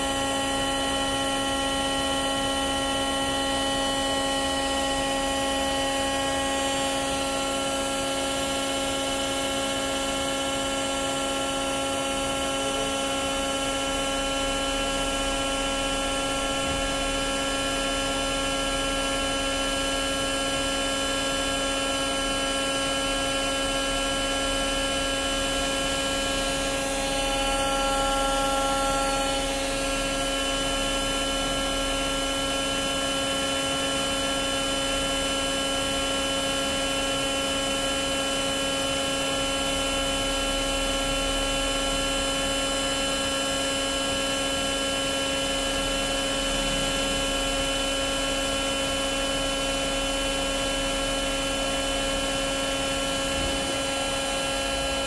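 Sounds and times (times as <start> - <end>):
lathe motors humming and whining: 0.0 - 55.0
extra louder whine: 13.7 - 19.4, 52.2 - 55.0.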